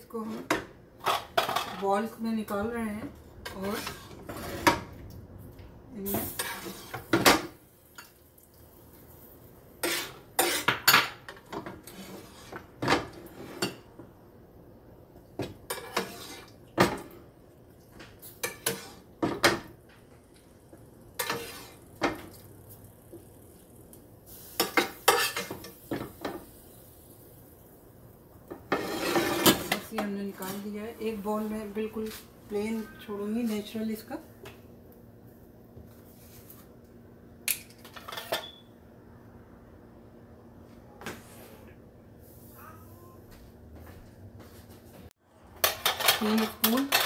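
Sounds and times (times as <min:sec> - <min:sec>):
spoon scraping a frying pan: 0:03.4 - 0:04.9, 0:06.1 - 0:07.2, 0:09.8 - 0:13.9, 0:15.6 - 0:16.6, 0:18.2 - 0:19.1, 0:21.2 - 0:22.2, 0:24.5 - 0:26.4, 0:28.5 - 0:30.1.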